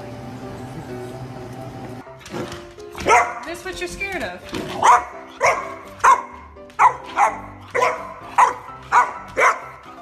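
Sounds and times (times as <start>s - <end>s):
background music: 0.0s - 10.0s
puppy barking: 3.0s - 3.5s, 4.7s - 9.9s.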